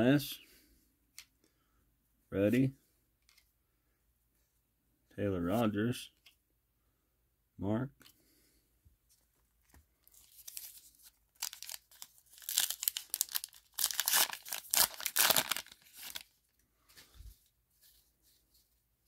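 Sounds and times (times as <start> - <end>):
faint rustling of cards: 2.4 - 4.6, 8.0 - 19.0
card pack wrapper tearing: 10.1 - 16.3.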